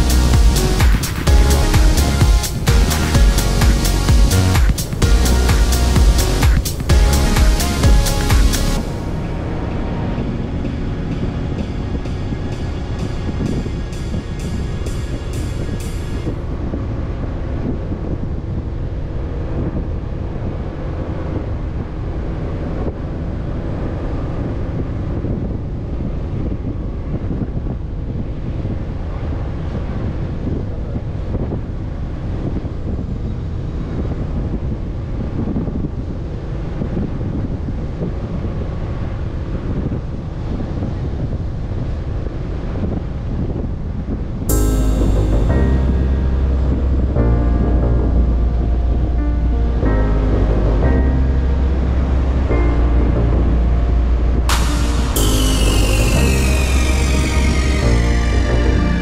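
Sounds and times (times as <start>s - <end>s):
wind buffeting microphone: 8.8s - 44.6s.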